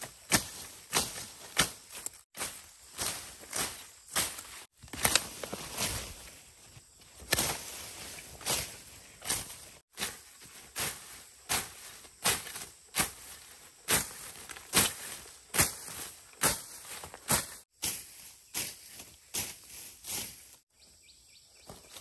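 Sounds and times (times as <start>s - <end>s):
hoe chopping into soil: 0.1s - 2.5s, 7.2s - 10.2s, 10.8s - 17.6s.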